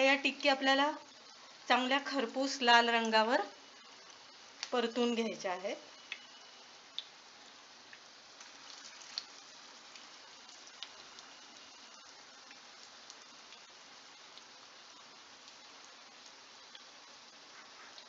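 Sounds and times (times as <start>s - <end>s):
patties sizzling in oil: 0.0s - 18.0s
small pops and crackles: 4.0s - 4.8s, 6.0s - 7.2s, 7.8s - 18.0s.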